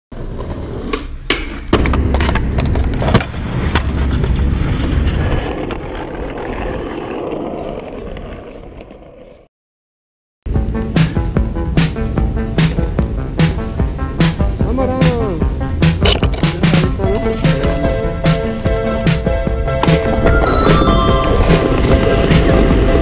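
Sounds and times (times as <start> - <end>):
skateboard wheels rolling: 0.1 - 9.5, 15.9 - 23.0
music: 10.5 - 23.0.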